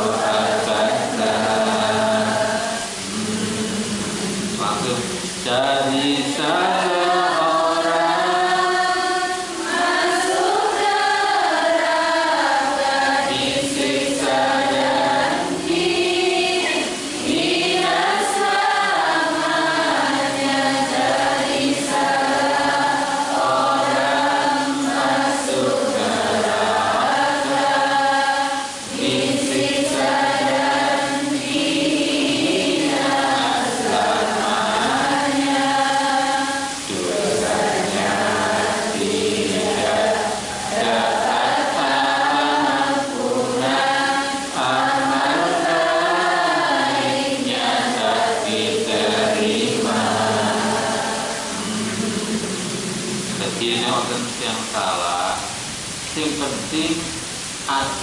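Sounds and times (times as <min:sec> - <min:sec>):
man chanting: 0:00.0 - 0:08.0, 0:51.7 - 0:58.0.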